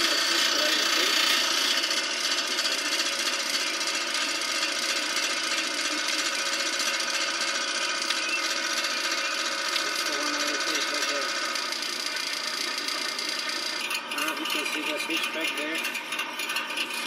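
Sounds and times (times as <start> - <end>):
clothes dryer running: 0.0 - 17.0.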